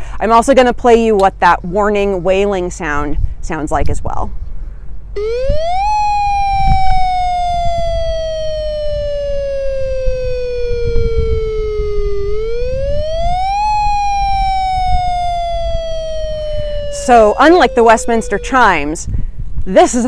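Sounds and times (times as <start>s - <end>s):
wailing warning siren: 5.2s - 19.2s.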